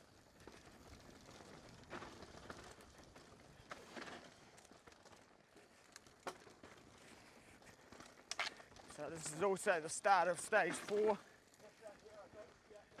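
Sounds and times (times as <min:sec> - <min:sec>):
bike rolling over dirt trail: 0:00.0 - 0:13.0
bike knocks and rattles: 0:00.2 - 0:05.3, 0:06.0 - 0:07.1.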